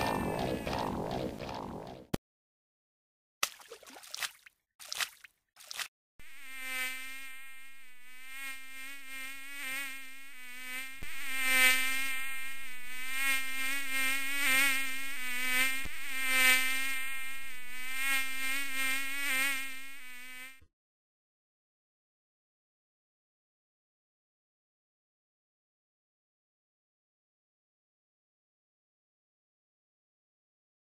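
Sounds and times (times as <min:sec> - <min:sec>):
cartoon bee buzzing: 0:00.0 - 0:02.2, 0:06.2 - 0:20.6.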